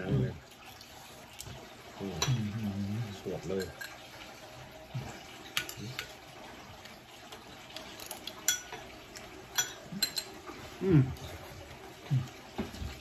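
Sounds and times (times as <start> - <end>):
cutlery clinking on plates: 3.5 - 4.0, 7.8 - 8.9, 9.5 - 10.4.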